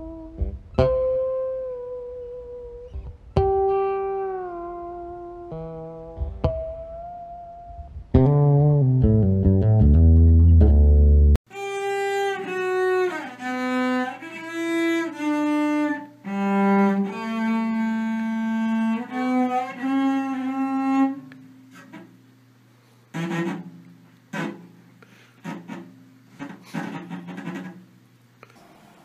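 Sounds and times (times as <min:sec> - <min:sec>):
cello slow melody: 0:00.0 - 0:22.1, 0:23.1 - 0:27.8
rough cello bow scrape: 0:23.1 - 0:27.8.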